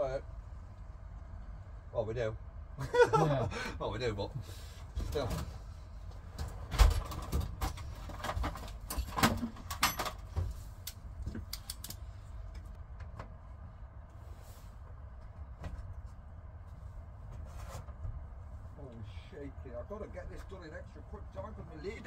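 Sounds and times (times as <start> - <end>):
steady low rumble: 0.0 - 9.0, 9.6 - 22.0.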